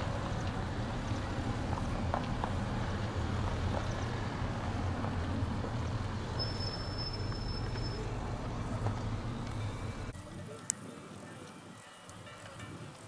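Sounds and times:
low motor hum: 0.0 - 10.1.

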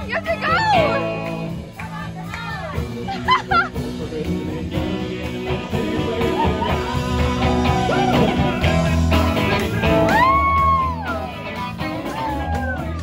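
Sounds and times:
electric guitar: 0.0 - 13.0
person singing: 2.7 - 11.3.

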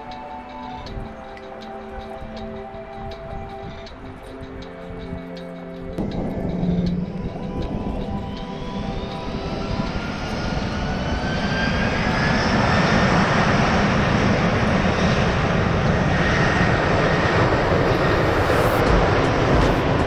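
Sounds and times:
jet engines spooling up: 6.0 - 20.0.

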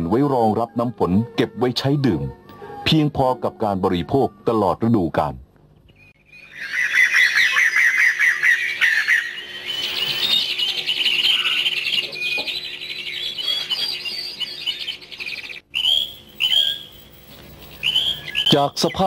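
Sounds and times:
birds chirping and chattering: 5.8 - 19.0
bird whistled notes: 5.9 - 19.0.

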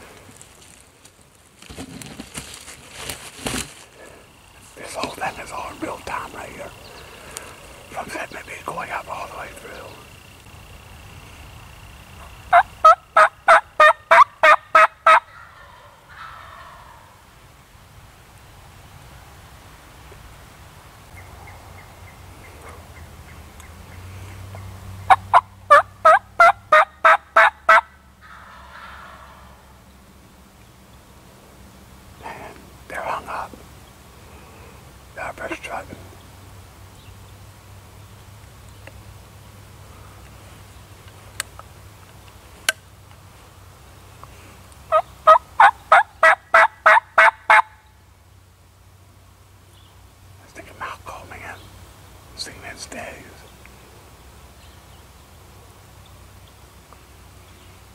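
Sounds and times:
turkey yelps: 12.5 - 17.2, 25.1 - 29.6, 44.9 - 47.8.

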